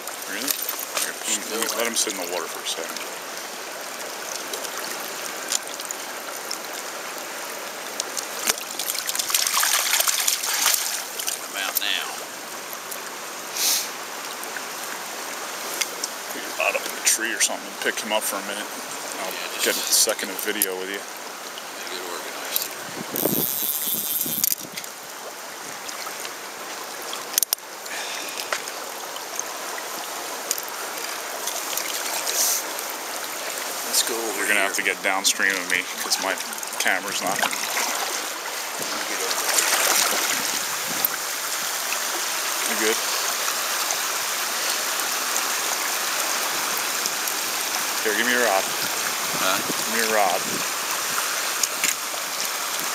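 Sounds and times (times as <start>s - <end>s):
river current rushing: 0.0s - 52.9s.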